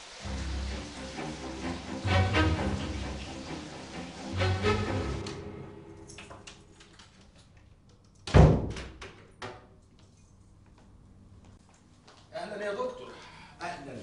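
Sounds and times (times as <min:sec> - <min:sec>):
music cue: 0:00.2 - 0:07.1
wooden door thud: 0:08.2 - 0:09.2.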